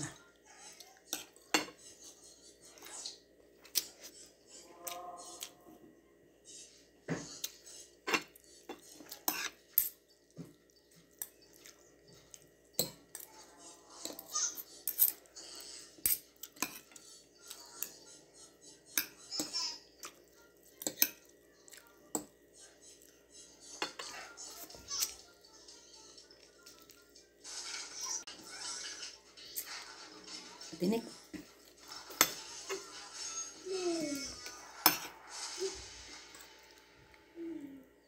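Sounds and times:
cutlery clinking on a plate: 0:01.2 - 0:01.8, 0:08.1 - 0:10.1, 0:12.8 - 0:13.3, 0:23.8 - 0:24.2, 0:31.3 - 0:32.8, 0:34.8 - 0:35.2.

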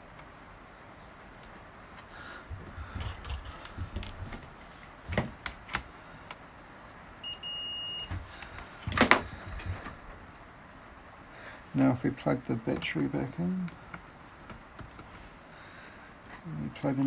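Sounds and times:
multimeter continuity beep: 0:07.2 - 0:08.2.

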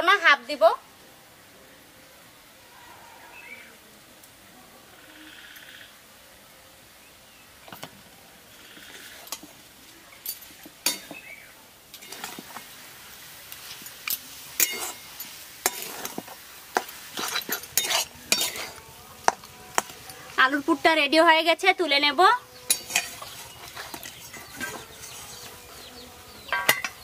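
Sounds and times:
metal spatula scraping metal pan: 0:10.8 - 0:11.2, 0:12.0 - 0:12.6, 0:14.5 - 0:20.8, 0:22.6 - 0:27.0.

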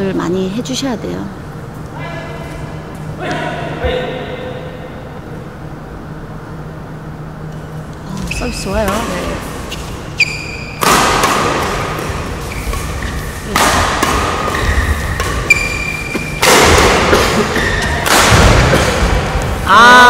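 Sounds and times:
shoe squeaks on court floor: 0:09.7 - 0:10.9, 0:12.4 - 0:13.5, 0:14.5 - 0:16.4
racket striking shuttlecock: 0:10.7 - 0:19.6
player shouting: 0:19.6 - 0:20.0.

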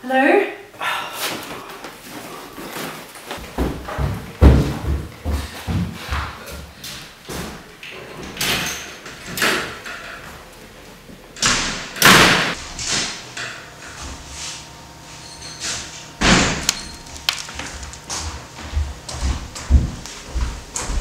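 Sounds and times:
household bangs and thuds: 0:03.4 - 0:06.3, 0:11.4 - 0:12.9, 0:16.2 - 0:16.7.

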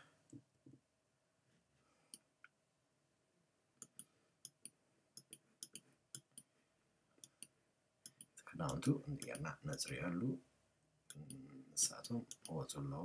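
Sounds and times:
computer mouse clicking: 0:03.8 - 0:06.5.

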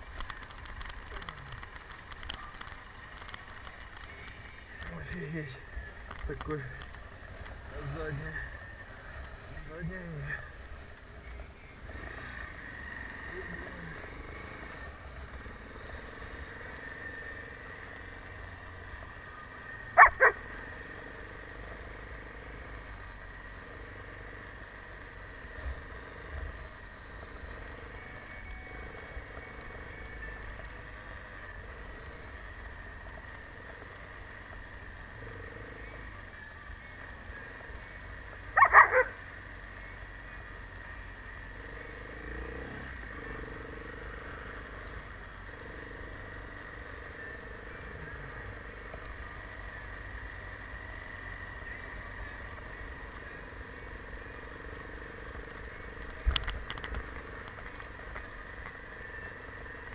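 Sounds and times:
motorcycle engine running: 0:00.0 - 0:59.9
dog barking: 0:20.0 - 0:20.5, 0:38.6 - 0:39.2.

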